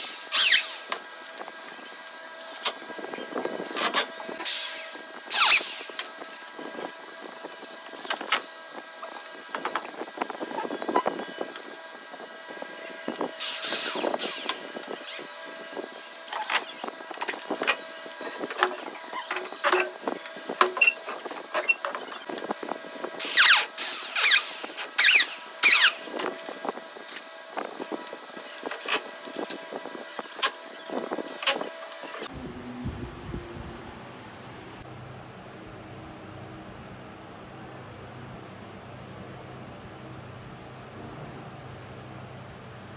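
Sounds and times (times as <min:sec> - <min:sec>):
cordless drill driving screws: 0:00.0 - 0:01.0.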